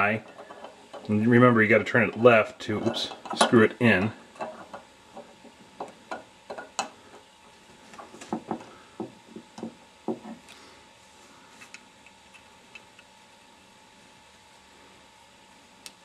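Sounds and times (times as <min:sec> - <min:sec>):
tools knocking on wooden table: 0:08.3 - 0:10.4.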